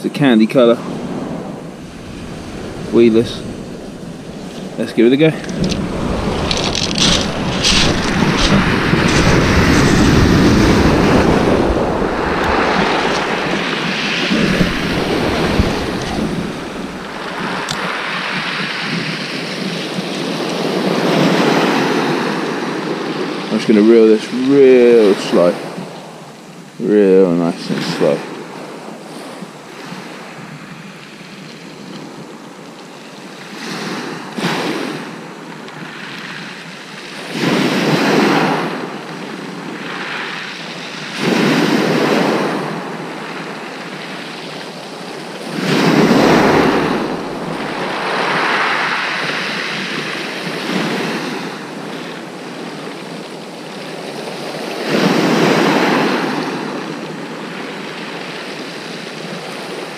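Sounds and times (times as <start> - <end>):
waves breaking on shingle: 1.0 - 22.0, 44.6 - 52.4.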